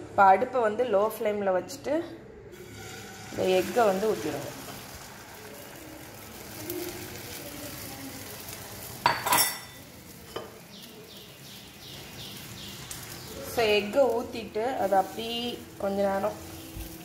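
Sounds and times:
egg sizzling in a frying pan: 2.5s - 17.0s
kitchenware clatter: 9.0s - 10.6s.

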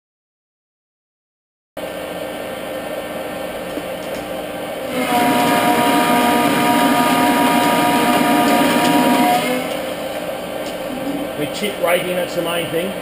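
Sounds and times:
steady whine: 1.8s - 13.0s
metal lathe cutting: 4.9s - 10.5s.

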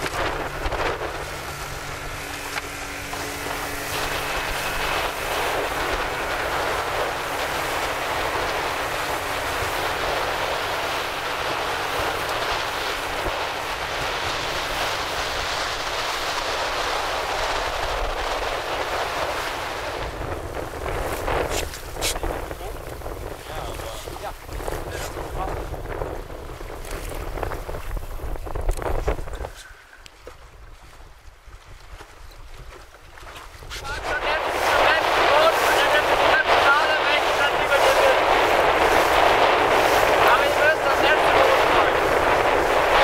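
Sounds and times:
boat engine hum: 0.0s - 43.0s
water rushing along boat hull: 0.0s - 43.0s
wind on microphone: 0.0s - 43.0s.

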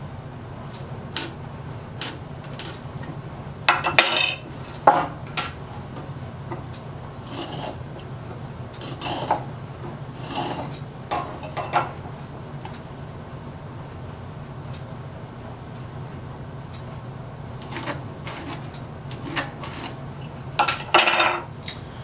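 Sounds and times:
tools set down on wooden workbench: 20.6s - 21.4s.

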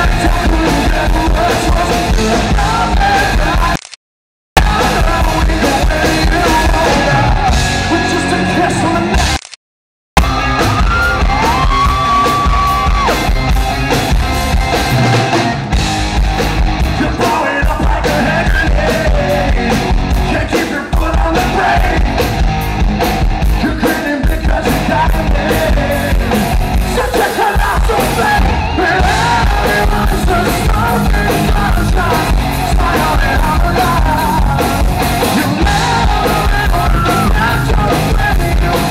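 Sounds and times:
drums: 0.0s - 3.8s, 4.6s - 9.5s, 10.2s - 38.9s
man singing lead vocal: 0.0s - 3.8s, 4.6s - 9.4s, 16.8s - 22.3s, 23.5s - 38.9s
electric guitar: 10.2s - 38.9s.

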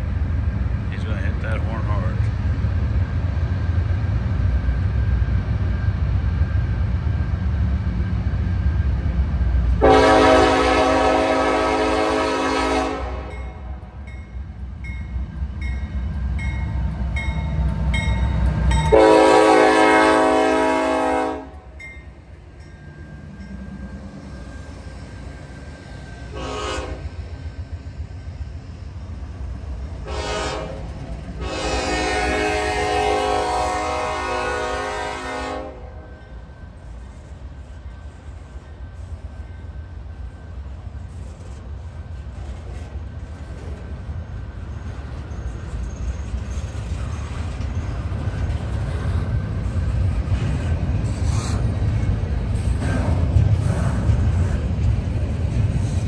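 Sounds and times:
deep locomotive rumble: 0.0s - 56.0s
locomotive air horn blasts: 9.8s - 13.4s, 18.9s - 21.7s, 26.3s - 27.0s, 30.0s - 30.8s, 31.4s - 36.0s.

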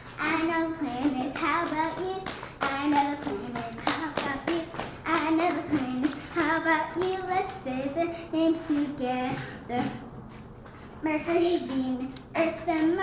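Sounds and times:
girl singing: 0.0s - 10.1s, 11.0s - 13.0s
sharp hand claps: 1.6s - 6.4s.

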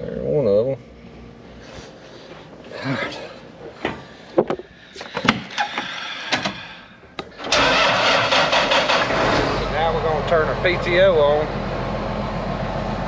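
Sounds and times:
tractor diesel engine running: 5.5s - 13.0s.

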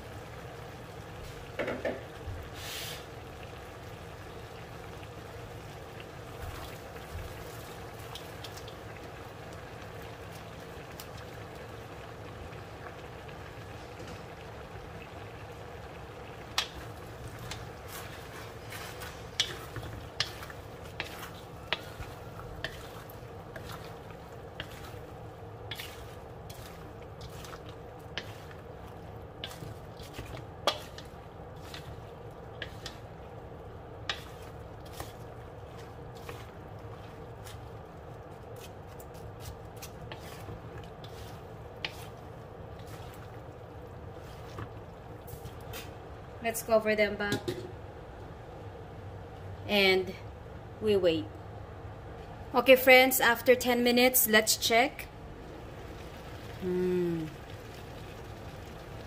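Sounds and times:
spatula knocking and scraping wok: 1.5s - 2.2s, 16.5s - 33.1s, 34.0s - 37.8s.

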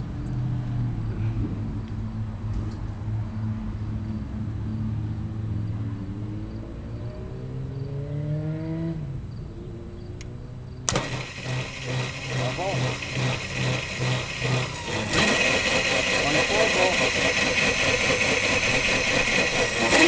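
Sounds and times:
electric motor humming: 10.9s - 20.0s.

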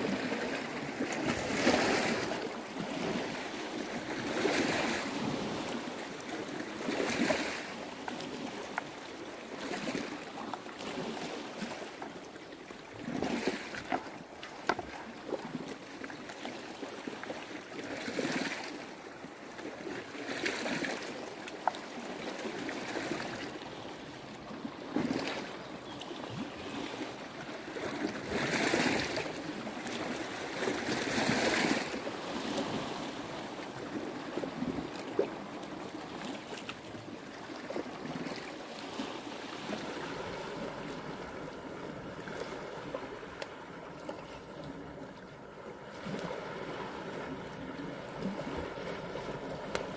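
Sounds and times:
sea waves washing on rocky shore: 0.0s - 49.9s
faint clicks: 49.6s - 49.9s.

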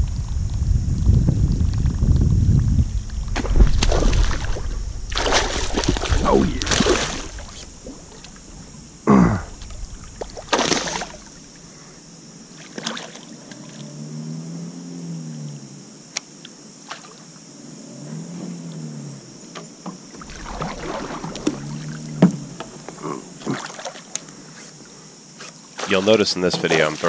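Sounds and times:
light water splashes: 3.2s - 8.7s, 9.5s - 11.7s, 12.5s - 13.9s, 16.4s - 17.3s, 19.6s - 24.8s, 25.6s - 27.0s.

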